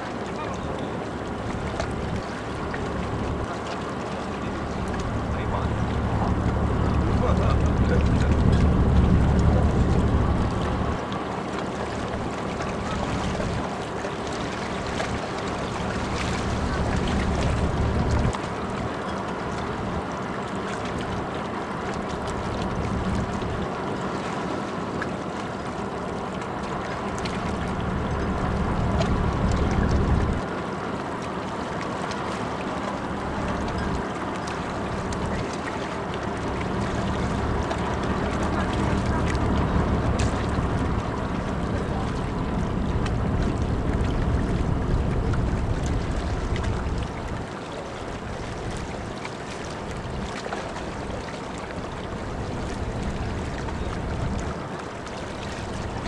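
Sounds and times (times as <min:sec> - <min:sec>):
ship engines droning: 0:00.0 - 0:56.0
deep rumble: 0:04.4 - 0:11.1, 0:14.3 - 0:18.9, 0:22.0 - 0:23.7, 0:26.9 - 0:30.5, 0:34.7 - 0:49.0, 0:52.0 - 0:54.6.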